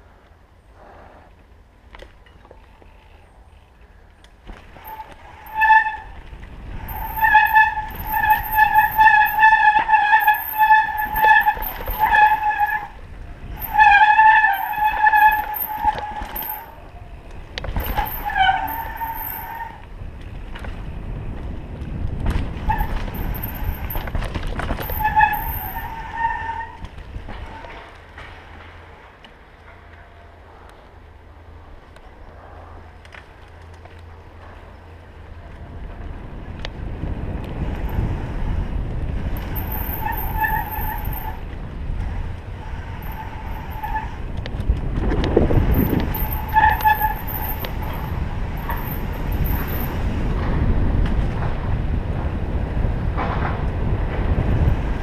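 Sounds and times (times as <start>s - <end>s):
mountain bike rattling over dirt: 4.4s - 29.0s
disc brake squealing: 4.7s - 6.2s, 6.8s - 17.2s, 17.8s - 19.9s, 22.6s - 27.8s, 39.4s - 41.5s, 45.6s - 50.1s.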